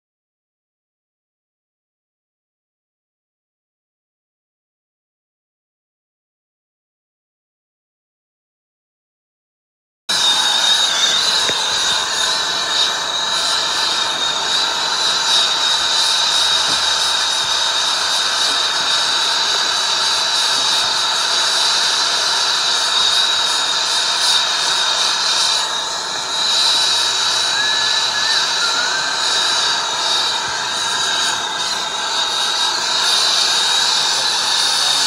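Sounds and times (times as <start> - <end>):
high whistle: 10.1 - 35.0
torch hissing: 10.1 - 35.0.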